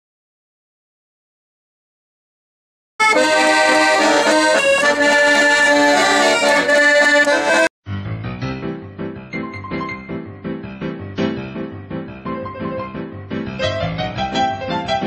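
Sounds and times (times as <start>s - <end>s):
repeating keyboard notes: 3.0s - 7.7s, 8.9s - 15.0s
piano accordion playing: 3.0s - 15.0s.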